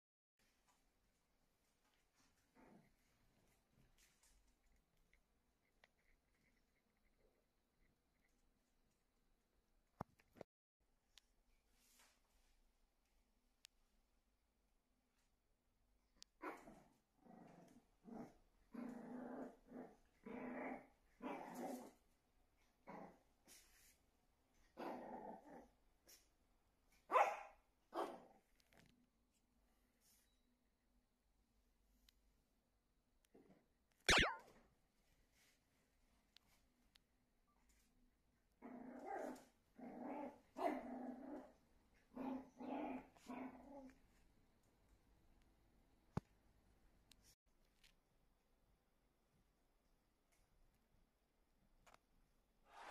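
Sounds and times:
puppy growling and barking: 16.4s - 22.0s, 24.7s - 25.8s, 27.1s - 28.6s, 38.6s - 44.0s.

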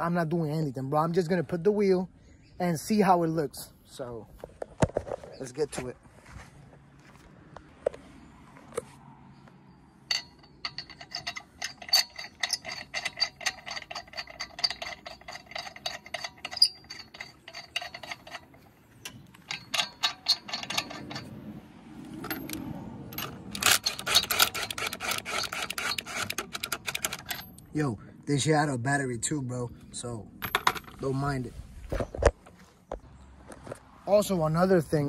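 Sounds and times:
lug nuts clicking onto studs: 10.0s - 27.7s
impact gun clattering: 30.4s - 31.0s.

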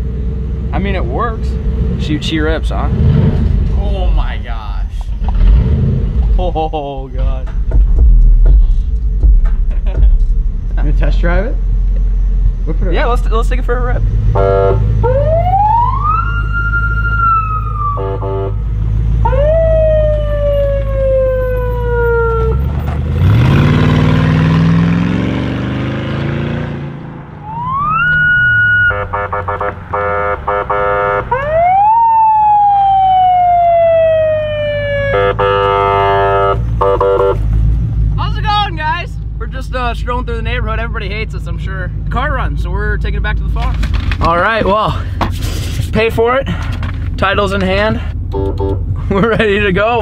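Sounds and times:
car engine revving: 0.0s - 16.3s, 22.3s - 31.8s
police siren wailing: 14.4s - 18.6s, 19.2s - 22.8s, 27.4s - 37.4s.

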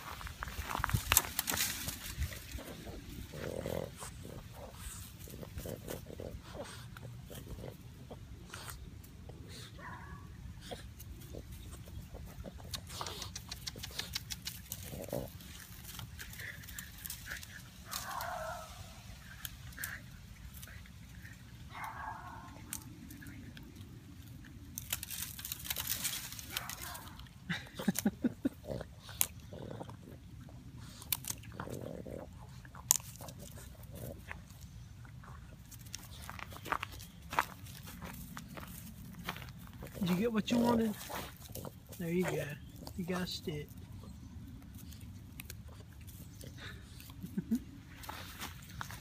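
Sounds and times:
dry bamboo and grass rustling: 0.0s - 49.0s
puppy grunting: 2.0s - 23.2s.

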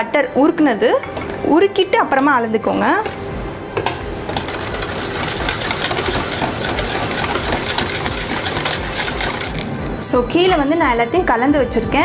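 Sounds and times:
whisk beating in metal bowl: 4.2s - 9.7s.

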